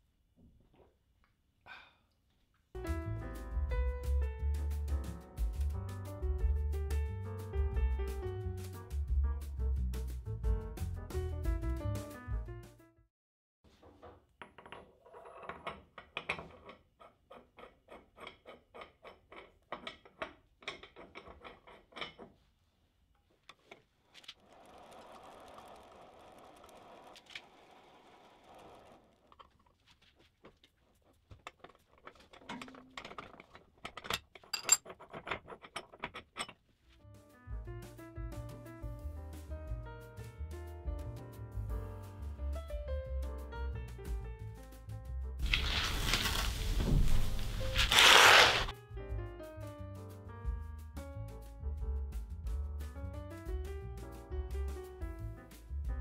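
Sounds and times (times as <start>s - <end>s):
evenly spaced ticks: 24.2s - 29.0s
steel parts clicking and clinking: 31.3s - 36.6s.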